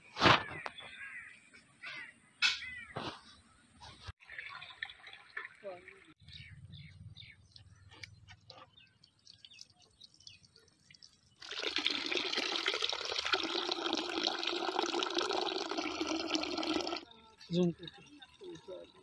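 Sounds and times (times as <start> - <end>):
water splashing into a pool: 4.2 - 6.2, 9.3 - 17.0.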